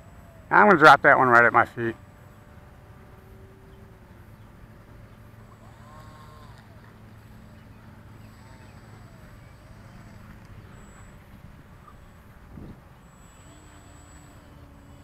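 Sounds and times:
model plane electric motor hum: 0.0 - 15.0
faint rising and falling whistles: 5.4 - 15.0.

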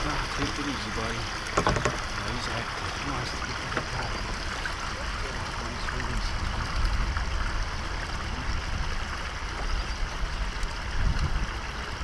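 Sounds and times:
water lapping and trickling: 0.0 - 12.0
low rumble: 4.2 - 12.0.

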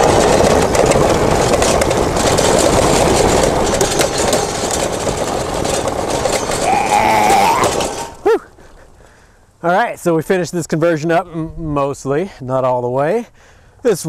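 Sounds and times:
tyres crunching on gravel: 0.0 - 11.0.

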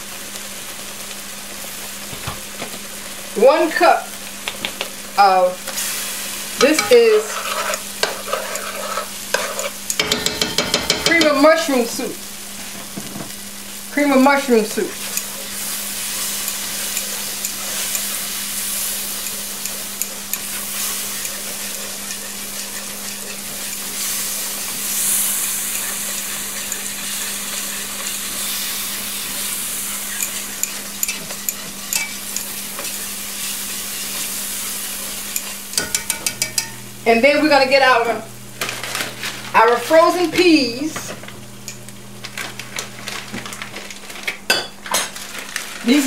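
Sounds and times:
gravy sizzling: 0.0 - 46.0
whisk scraping and clicking on pan: 6.6 - 11.4, 15.0 - 36.8.

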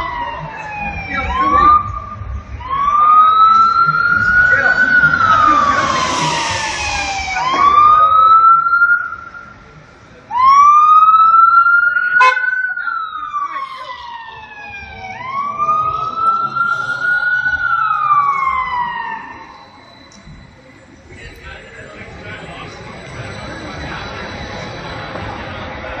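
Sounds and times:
emergency siren wailing: 0.0 - 21.0
vehicle horn blast: 12.2 - 12.4.

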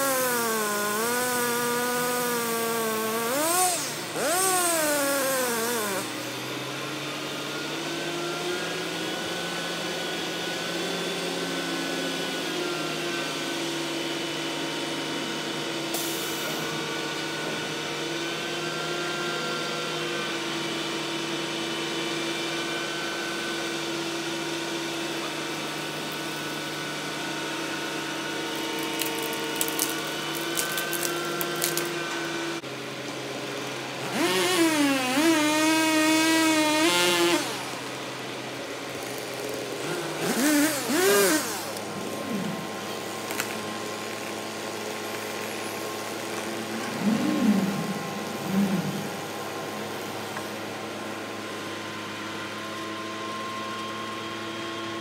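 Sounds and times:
chainsaw engine revving: 0.0 - 6.5, 34.0 - 38.0, 38.9 - 49.8.

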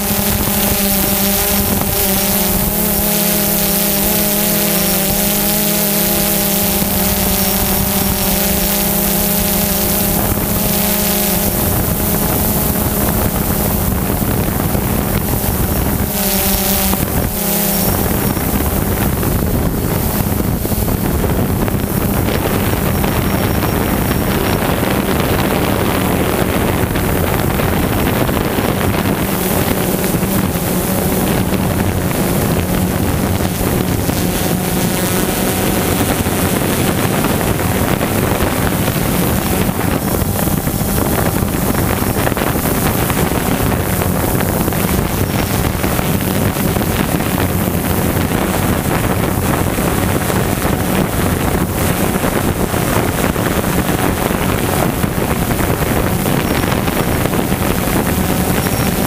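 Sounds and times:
drone propellers whirring: 0.0 - 59.0
wind noise on microphone: 0.0 - 59.0.

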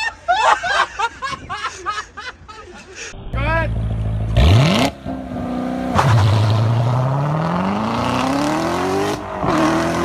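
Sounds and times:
car engine revving: 3.7 - 10.0.

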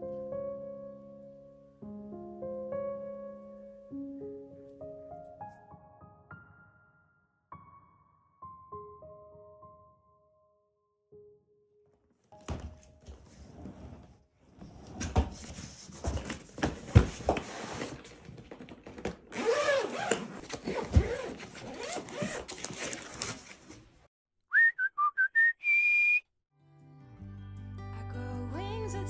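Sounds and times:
high whistled notes: 24.5 - 26.2.

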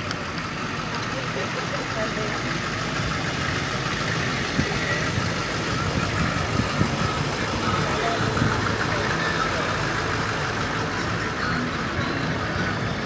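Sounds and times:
van engine idling passing by: 0.0 - 13.0.

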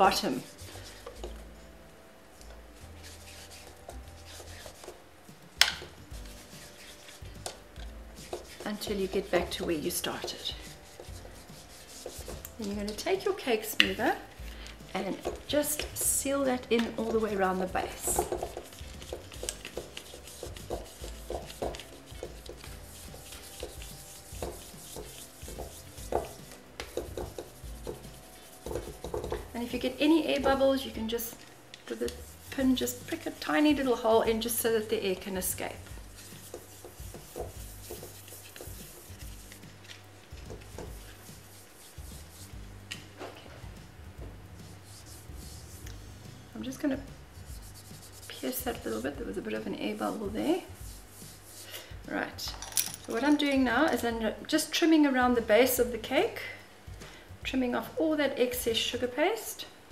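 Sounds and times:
cake smoother rubbing fondant: 0.0 - 1.5, 2.8 - 5.0, 6.0 - 7.4, 8.2 - 30.9, 31.9 - 42.6, 44.6 - 45.8, 47.4 - 51.8.

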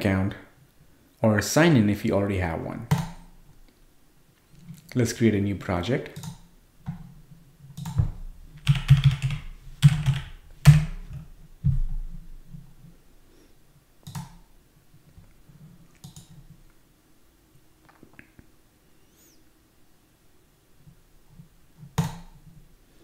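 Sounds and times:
computer keyboard typing: 7.8 - 11.2, 16.0 - 16.4.

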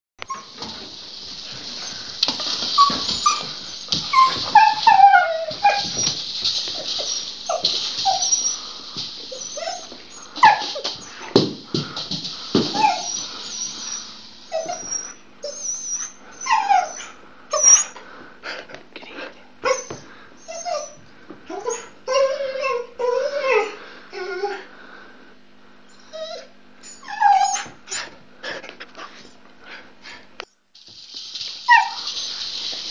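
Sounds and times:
dog whining and yipping: 0.3 - 0.6, 2.6 - 8.6, 9.2 - 11.4, 12.6 - 18.0, 19.6 - 24.7, 25.9 - 28.2, 31.7 - 32.5.

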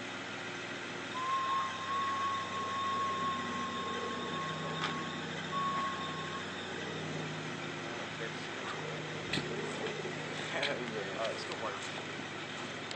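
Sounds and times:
vehicle engine idling: 0.0 - 12.9
steady high-pitched tone: 1.1 - 10.4.

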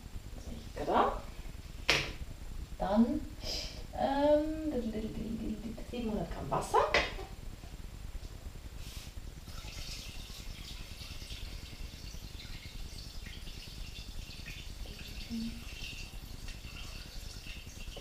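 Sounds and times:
water pouring into metal bowl: 9.4 - 18.0.

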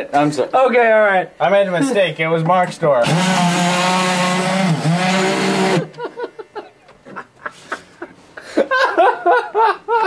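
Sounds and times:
power drill running: 3.0 - 6.0
people laughing: 5.8 - 10.0.

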